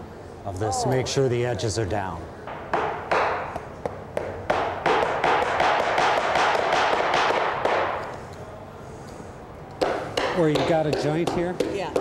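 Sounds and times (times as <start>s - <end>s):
hammer tapping staples: 2.5s - 8.1s, 9.8s - 12.0s.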